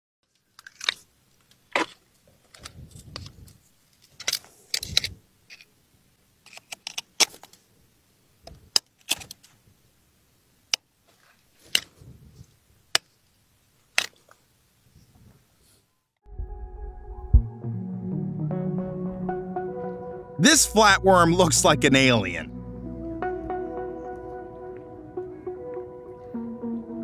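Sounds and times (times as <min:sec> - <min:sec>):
low rumble: 0:16.2 - 0:17.7.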